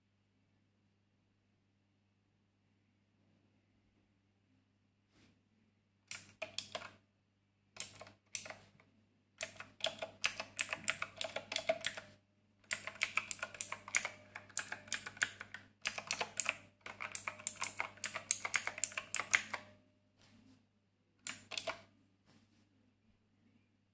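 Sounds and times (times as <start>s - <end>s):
mechanical keyboard key clicks: 6.1s - 6.9s, 7.8s - 8.6s, 9.4s - 12.0s, 12.7s - 19.6s, 21.3s - 21.8s.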